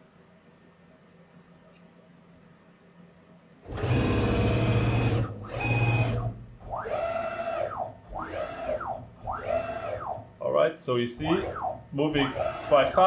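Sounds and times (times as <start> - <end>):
motor whine and rattle: 3.6 - 10.3, 11.2 - 13.0.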